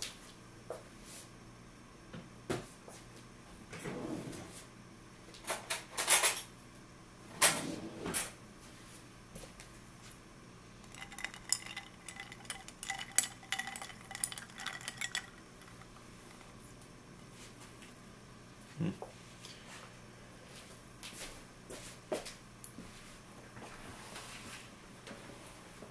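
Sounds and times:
sharp clinks and knocks: 10.8 - 16.6
spoon stirring ice in a glass: 10.8 - 16.6.

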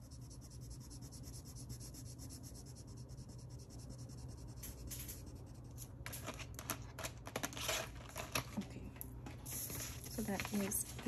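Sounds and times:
pen scratching on paper: 0.0 - 5.8
paper rustles and taps: 9.6 - 11.0.

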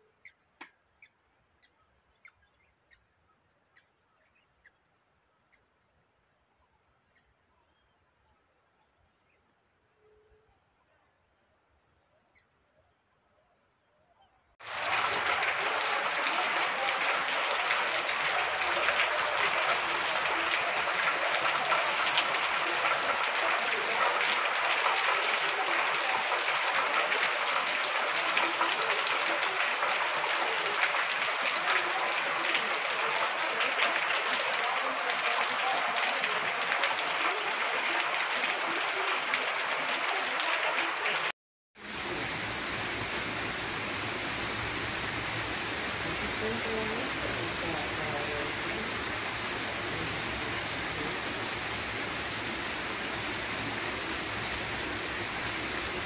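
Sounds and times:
heavy rain on wet street: 14.6 - 56.0.

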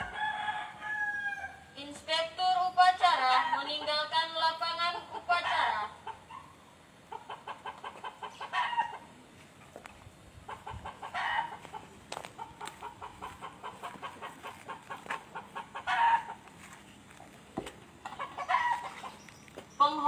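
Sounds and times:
chicken clucking: 4.6 - 19.5.

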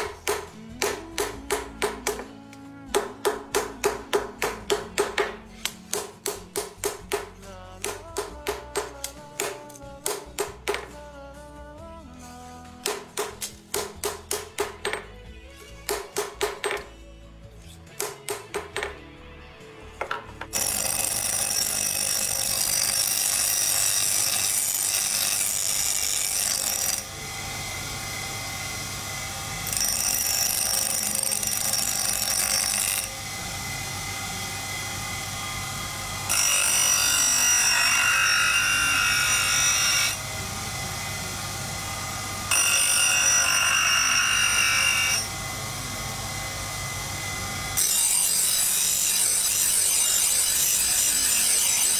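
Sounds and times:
bench grinder running: 20.4 - 51.9
knife blade grinding: 20.5 - 27.1, 47.8 - 51.9.

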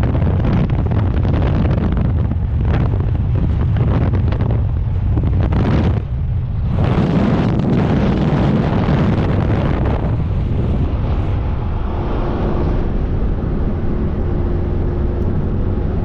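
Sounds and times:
wind buffeting microphone: 0.0 - 16.0.

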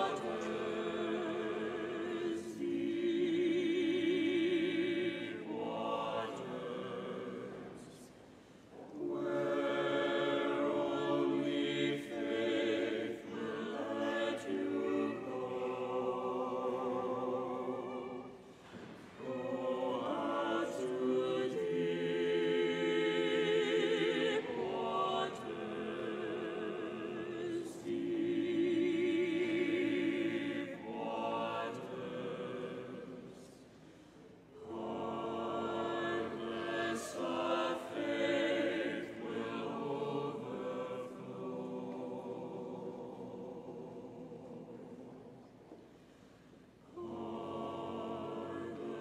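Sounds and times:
choir singing a hymn: 0.0 - 49.0.

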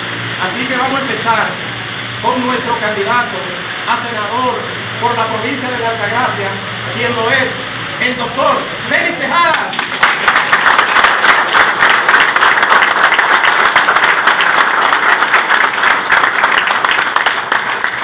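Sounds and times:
audience applauding: 9.5 - 18.0.

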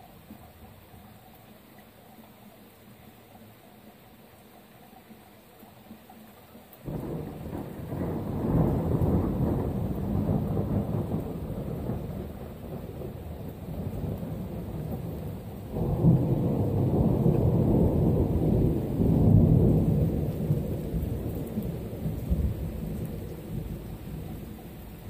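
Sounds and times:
rolling thunder: 6.9 - 25.0.

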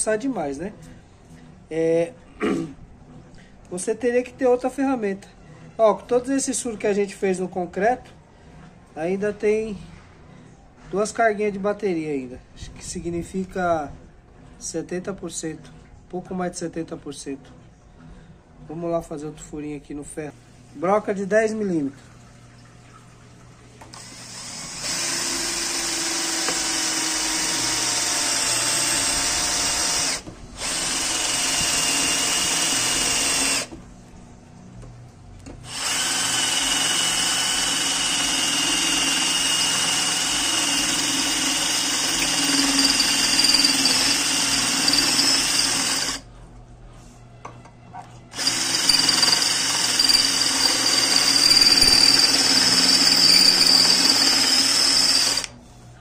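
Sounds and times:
cordless drill drilling into metal: 23.9 - 33.7, 35.7 - 46.2, 48.3 - 55.5.

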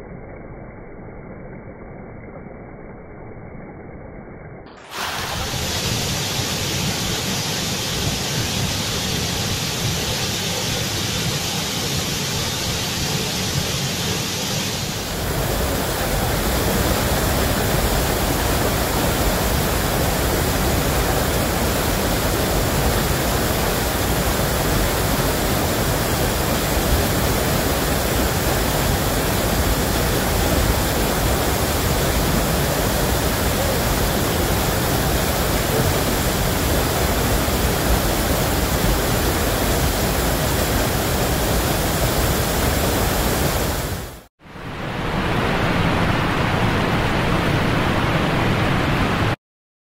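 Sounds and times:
waterfall rushing: 4.8 - 44.3.

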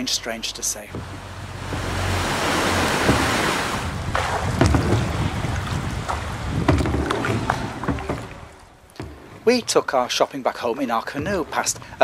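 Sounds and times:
rushing water: 0.0 - 12.0
wind noise: 0.9 - 8.6
knocks against canoe hull: 0.9 - 9.9
paddle splashing in water: 0.9 - 10.2.

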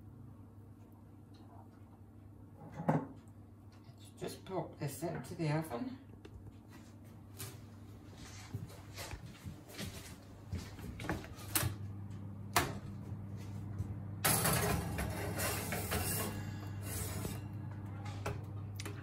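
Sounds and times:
oven humming: 0.0 - 19.0.

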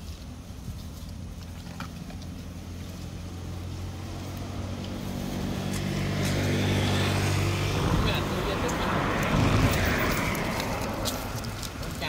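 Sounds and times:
vehicle engine humming: 0.0 - 12.0
rush of noise: 5.1 - 12.0.

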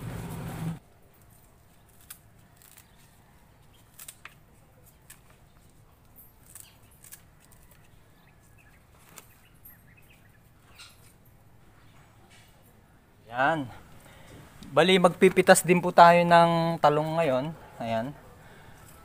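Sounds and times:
scissors snipping leaves: 1.2 - 5.5, 6.4 - 7.9.

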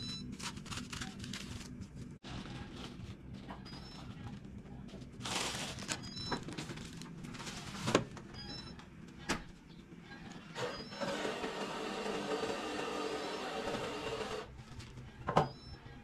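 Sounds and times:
plastic bag rustling: 0.4 - 3.5, 5.0 - 8.1.

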